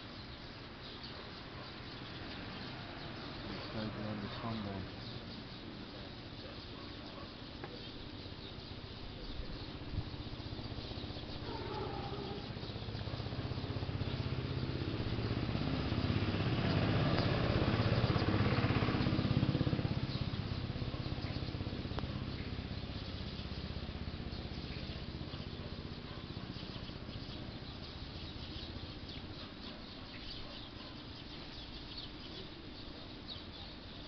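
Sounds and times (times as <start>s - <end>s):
small engine running: 9.9s - 29.5s.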